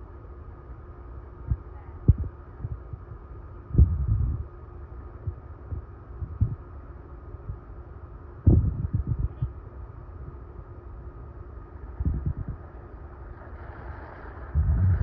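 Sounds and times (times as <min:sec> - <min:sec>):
faint steady hum: 0:00.0 - 0:15.0
wind buffeting microphone: 0:03.7 - 0:04.5, 0:05.3 - 0:06.6, 0:08.4 - 0:09.5, 0:11.9 - 0:15.0.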